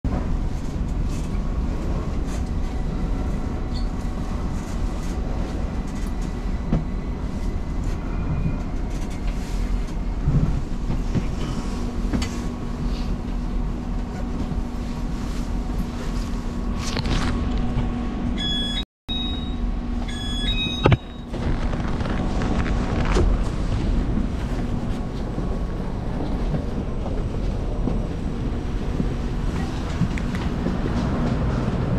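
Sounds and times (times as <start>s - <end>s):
metro train rumble and rail noise: 0.1s - 31.9s
short high electronic tones: 18.4s - 21.3s.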